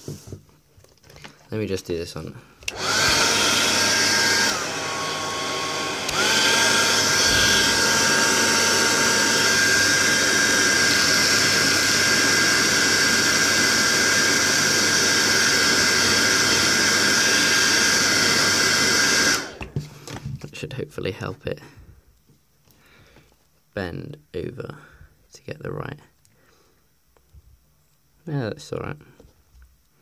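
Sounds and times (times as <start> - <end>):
hair dryer blowing: 2.6 - 20.2.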